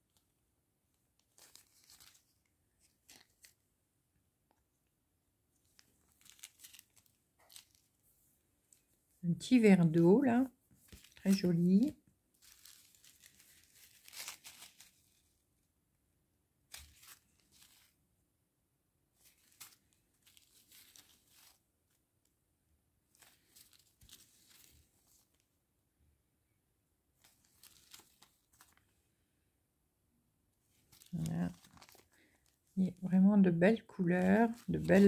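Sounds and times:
plastic zip bags crinkling: 1.2s - 3.6s, 5.6s - 7.9s, 10.8s - 15.2s, 16.7s - 18.0s, 19.2s - 21.6s, 23.1s - 25.4s, 27.2s - 28.9s, 30.7s - 32.6s, 34.0s - 35.0s.

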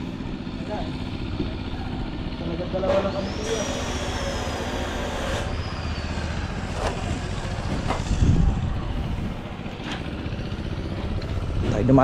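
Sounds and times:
low rumble: 6.1s - 12.0s.

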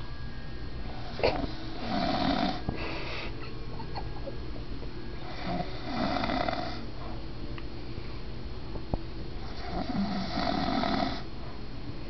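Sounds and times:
man snoring: 1.3s - 2.6s, 5.2s - 6.8s, 9.4s - 11.3s.

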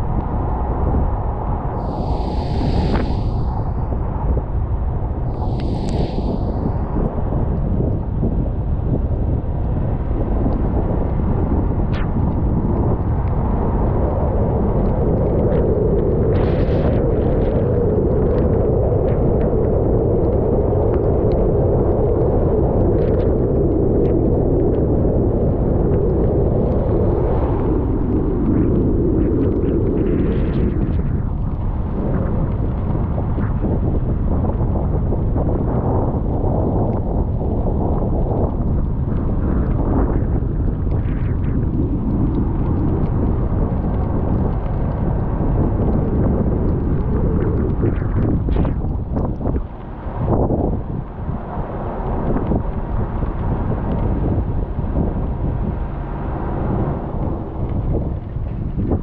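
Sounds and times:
wind buffeting microphone: 0.0s - 59.0s
road noise: 1.8s - 4.0s, 51.3s - 58.7s.

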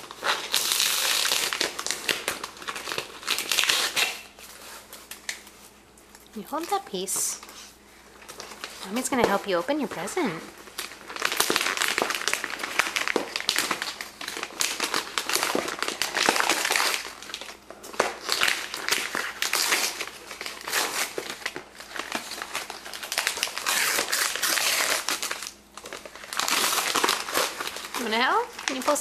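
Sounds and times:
wrapping paper crinkling: 0.0s - 29.0s.

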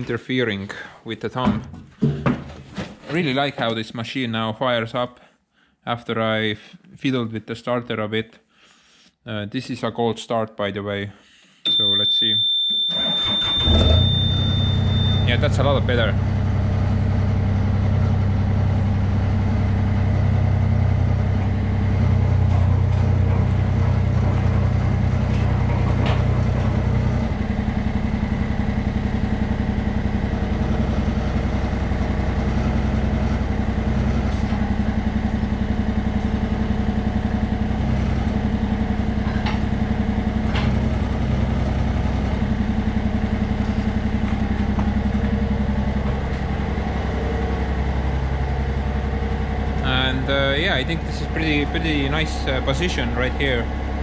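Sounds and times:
small diesel engine running: 12.8s - 54.0s
hydraulics working: 12.9s - 54.0s.

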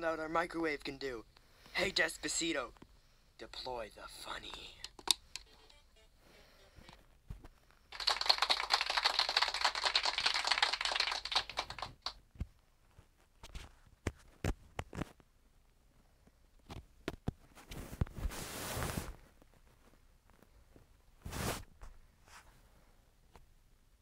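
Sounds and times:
harsh crackling noise: 7.9s - 12.2s.

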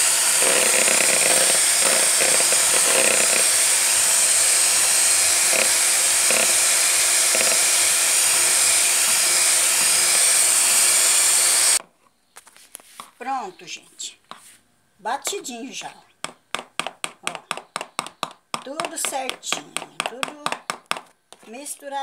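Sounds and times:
electric hand mixer running: 0.0s - 11.8s.

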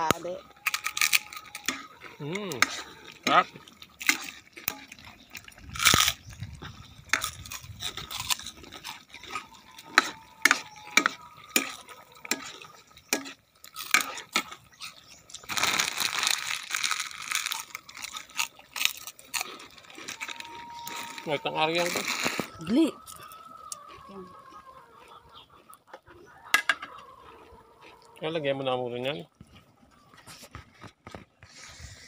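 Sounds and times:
metal ladle scraping metal pan: 0.7s - 3.4s, 9.9s - 14.6s
rustling scraping noise: 19.8s - 22.7s, 29.5s - 32.0s.

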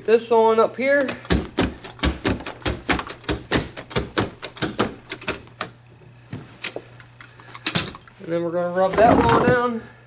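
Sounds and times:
knee kicker knocking: 1.1s - 5.5s.

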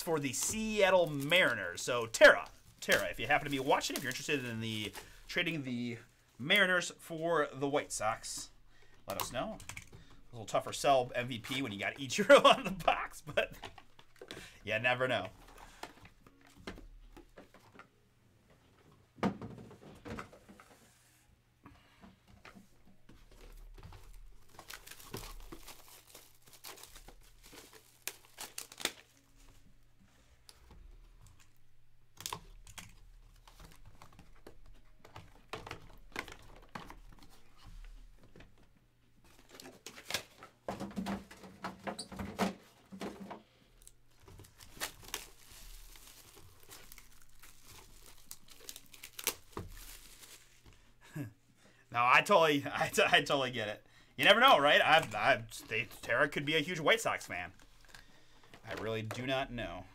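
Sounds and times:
plastic wrapping crinkling: 0.0s - 5.6s, 23.2s - 38.6s, 43.7s - 51.3s, 52.2s - 59.3s.

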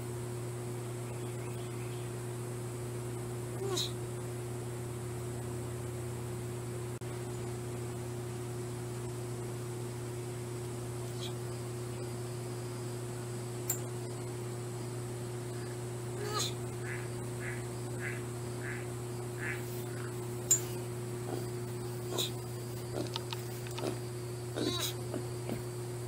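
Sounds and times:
steady hum with hiss: 0.0s - 26.0s
short squeaky calls: 11.1s - 11.4s, 24.6s - 25.0s
short animal call: 24.6s - 25.0s.

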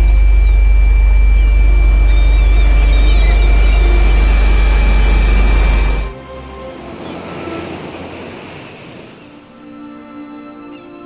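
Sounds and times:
faint bird chirps: 0.0s - 6.1s
high-pitched whine: 0.0s - 6.2s
low electrical hum: 0.0s - 6.2s.

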